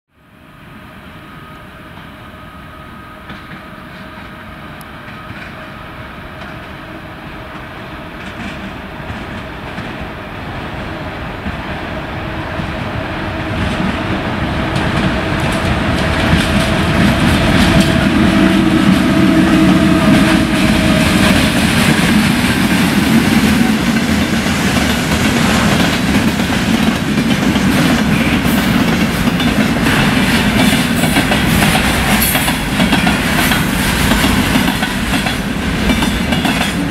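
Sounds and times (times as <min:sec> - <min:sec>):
electric locomotive whine: 0:00.2 - 0:36.9
train wagons rumbling: 0:03.3 - 0:36.9
wheels clicking over rail joints: 0:21.2 - 0:36.9.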